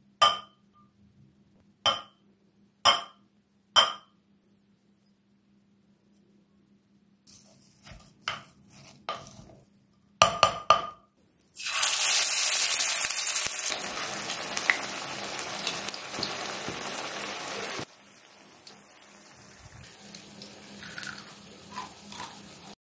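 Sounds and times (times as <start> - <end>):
patties sizzling in hot oil: 11.6 - 22.8
spoon scraping in a bowl: 21.7 - 22.6.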